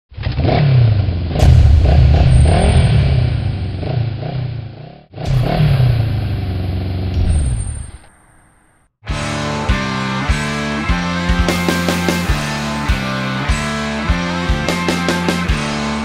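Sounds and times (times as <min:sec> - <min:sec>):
motocross bike engine revving: 0:02.3 - 0:07.2.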